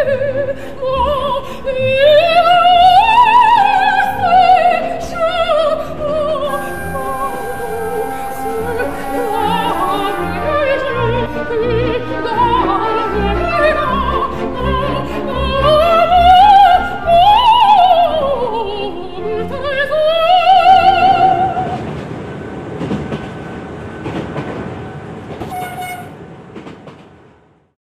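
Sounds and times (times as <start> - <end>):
musical accompaniment: 0.0 - 21.8
operatic singing with vibrato: 0.0 - 21.9
train rushing noise: 5.4 - 17.4, 20.0 - 27.6.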